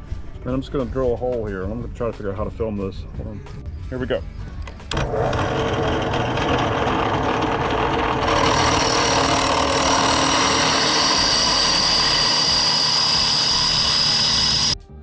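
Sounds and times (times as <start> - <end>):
drill bit whining on metal: 4.9 - 14.8
drill press motor: 4.9 - 14.8.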